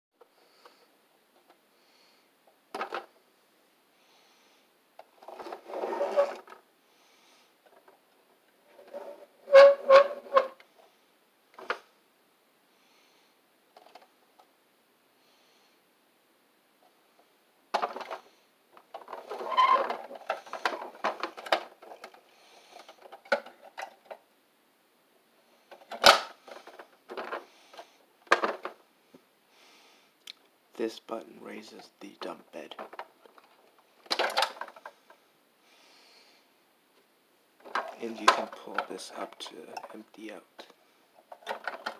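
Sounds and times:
plastic toy truck clicking and rattling: 2.7 - 3.1, 13.8 - 14.1, 17.7 - 24.2, 25.7 - 28.8, 32.2 - 35.1, 37.6 - 41.9.

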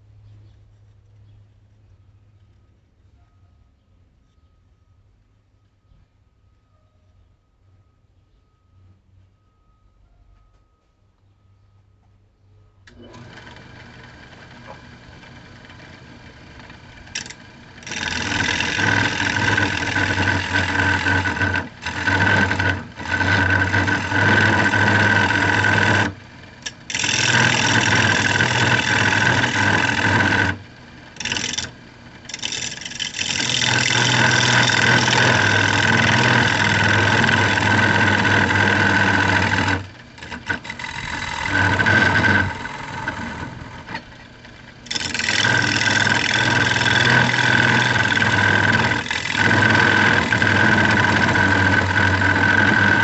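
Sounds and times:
wood lathe humming: 12.9 - 53.0
gouge cutting wood: 17.1 - 44.1, 44.9 - 53.0.

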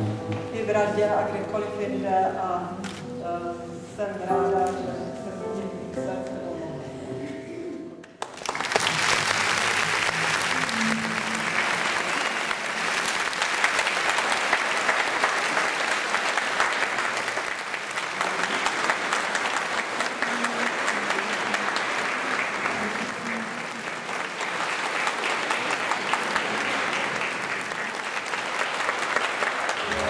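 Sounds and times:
audience applauding: 8.0 - 30.0.

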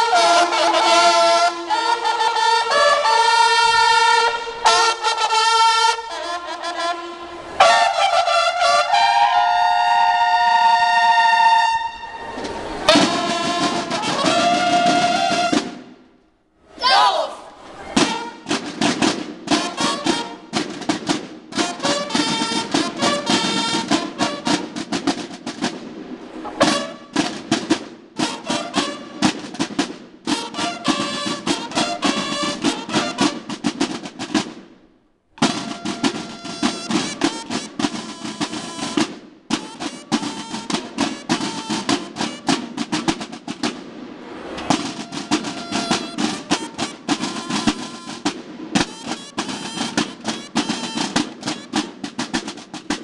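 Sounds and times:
bugle calls: 0.0 - 15.6, 21.6 - 24.9, 26.5 - 27.3, 30.3 - 33.6, 35.4 - 42.7, 44.8 - 51.9
field drums beating rolls: 0.0 - 16.1, 17.9 - 53.0.

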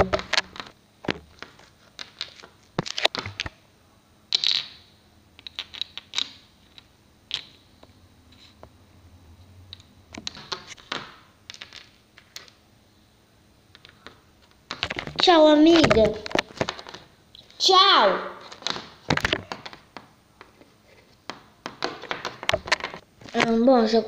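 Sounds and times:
plastic toys tapping and clattering: 10.2 - 12.6, 18.5 - 20.6, 21.2 - 23.5.

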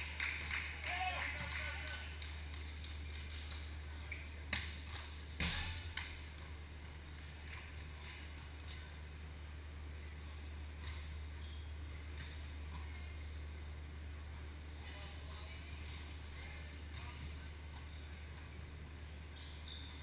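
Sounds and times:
sports hall hum: 0.0 - 20.0
volleyball being struck: 5.4 - 6.2.

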